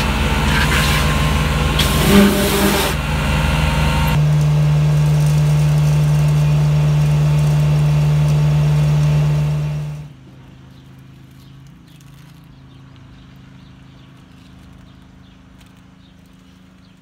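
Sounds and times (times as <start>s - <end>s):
engine-driven equipment running: 0.0s - 10.4s.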